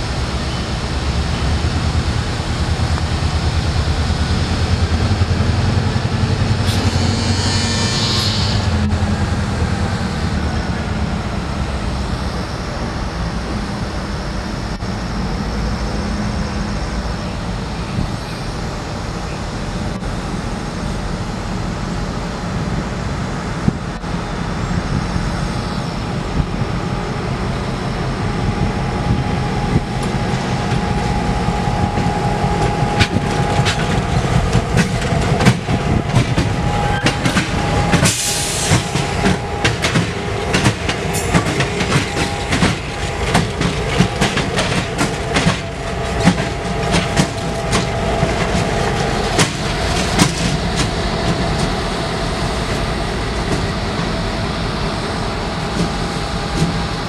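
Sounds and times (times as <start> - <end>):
diesel locomotive engines rumbling: 0.0 - 57.0
high whine: 25.5 - 57.0
wheels clicking over rail joints: 32.0 - 51.8.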